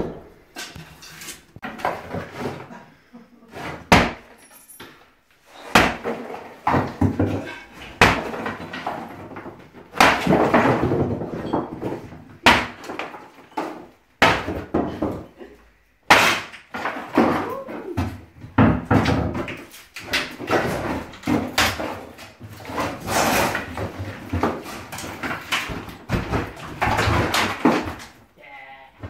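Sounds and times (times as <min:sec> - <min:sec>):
wood clattering and knocking: 0:00.0 - 0:02.8, 0:05.6 - 0:15.4, 0:16.1 - 0:28.3
sledgehammer striking wooden frame: 0:03.9 - 0:04.3, 0:05.6 - 0:15.2, 0:16.1 - 0:17.6.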